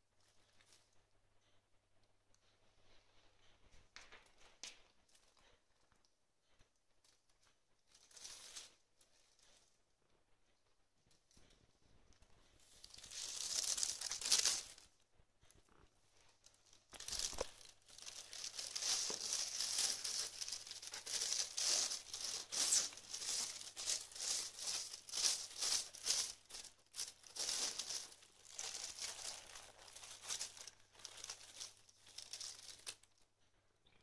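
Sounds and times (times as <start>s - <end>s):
plastic bag crinkling: 12.6s - 15.0s, 15.6s - 33.2s.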